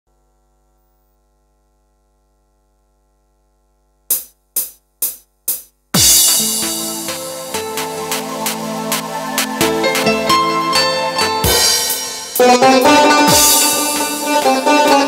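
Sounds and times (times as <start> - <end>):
electronic drums and bass: 4.1 - 15.0.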